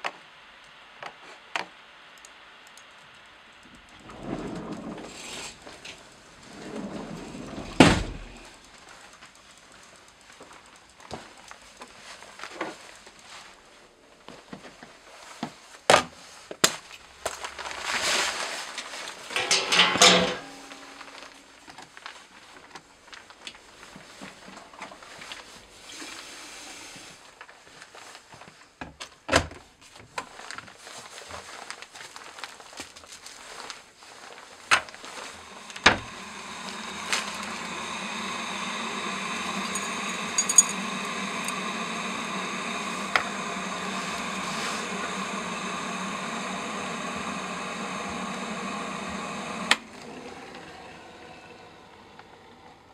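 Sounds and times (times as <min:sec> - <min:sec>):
electric kettle heating hiss and hum: 0:00.0 - 0:15.5, 0:17.2 - 0:21.8, 0:34.1 - 0:52.9
kitchen clicks and knocks: 0:19.3 - 0:21.1.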